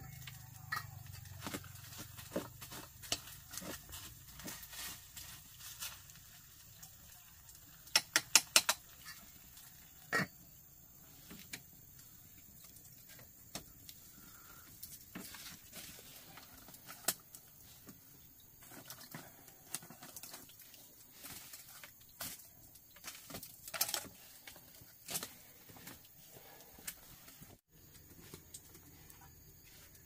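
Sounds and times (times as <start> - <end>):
sticks and lidded pot clicking: 7.8 - 9.2.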